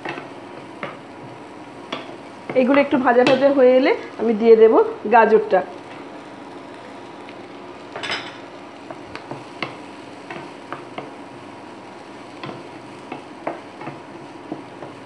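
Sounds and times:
low sizzle of frying: 0.0s - 15.0s.

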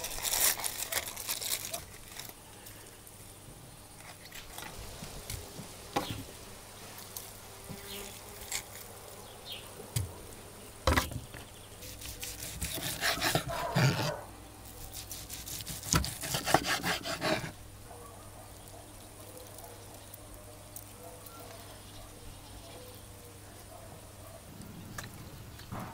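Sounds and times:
serrated knife sawing steak: 11.8s - 14.2s, 14.8s - 17.6s
knife scraping wooden board: 11.9s - 14.2s, 14.9s - 17.6s.

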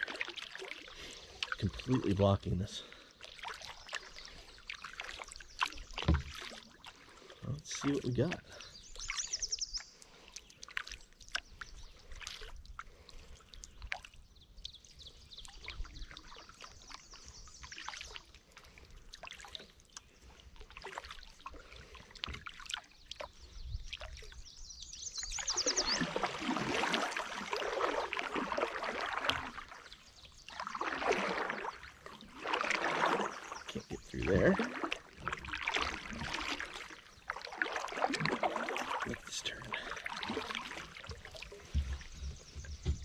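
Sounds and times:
water dripping off paddle: 0.0s - 24.4s, 25.2s - 43.0s
water splashing: 0.0s - 24.5s, 25.2s - 43.0s
paddle clicks and knocks: 5.9s - 6.6s, 40.4s - 43.0s.

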